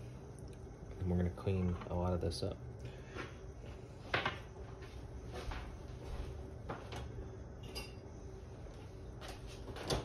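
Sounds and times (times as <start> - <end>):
small ringing clink: 7.6 - 8.1.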